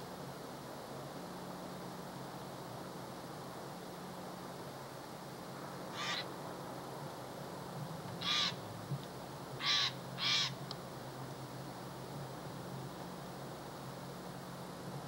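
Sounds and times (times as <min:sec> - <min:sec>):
jay giving harsh raspy calls: 0:05.9 - 0:06.3, 0:08.2 - 0:08.6, 0:09.6 - 0:10.6.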